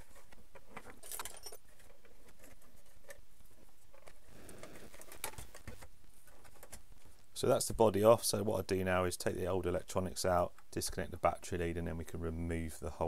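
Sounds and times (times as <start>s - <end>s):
hard plastic clicks and scraping: 0.0s - 7.2s.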